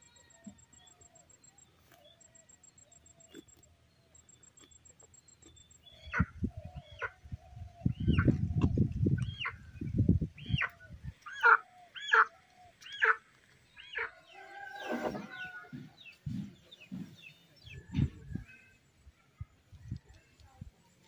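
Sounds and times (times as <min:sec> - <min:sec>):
chickens squawking: 0:10.4 - 0:13.2.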